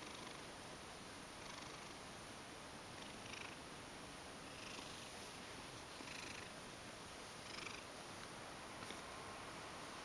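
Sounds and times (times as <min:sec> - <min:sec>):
cat purring: 0:00.0 - 0:00.5, 0:01.4 - 0:02.0, 0:02.9 - 0:03.6, 0:04.4 - 0:06.6, 0:07.4 - 0:08.0.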